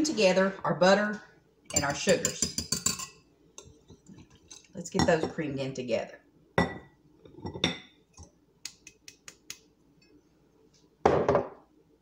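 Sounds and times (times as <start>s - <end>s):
utensils clinking against glass bowl: 1.7s - 5.3s.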